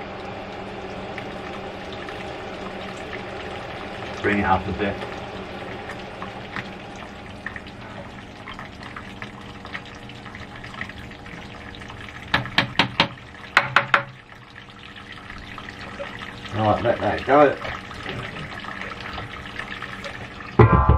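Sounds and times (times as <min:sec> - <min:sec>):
liquid trickling and splashing: 0:00.0 - 0:20.6
sharp knocks of copper pipe: 0:12.3 - 0:14.2.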